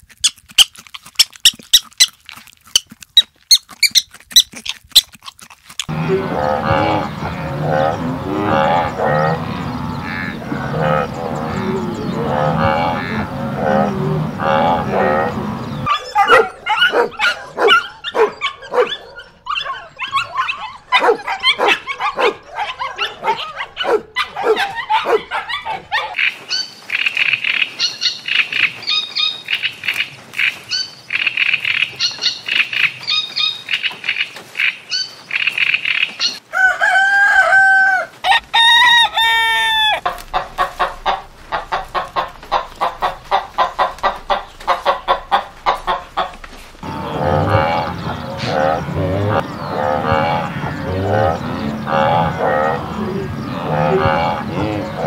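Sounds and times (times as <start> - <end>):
hens clucking: 5.8 - 26.3, 38.2 - 55.0
puppies yipping and whining: 15.9 - 26.2
rooster crowing: 36.5 - 40.1.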